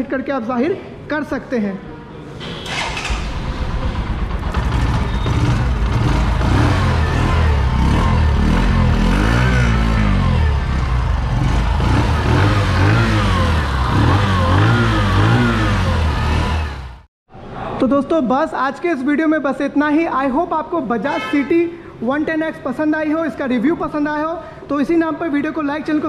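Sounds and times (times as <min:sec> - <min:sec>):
motorcycle engine revving: 0:02.6 - 0:17.1.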